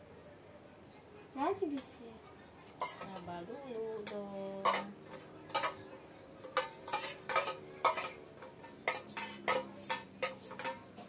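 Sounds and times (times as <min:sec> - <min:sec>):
metal utensil clinking in tin: 0:06.4 - 0:10.9.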